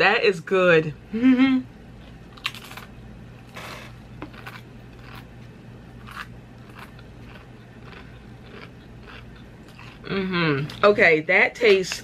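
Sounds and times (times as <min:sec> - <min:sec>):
crunching and chewing crisp: 0:02.0 - 0:10.8.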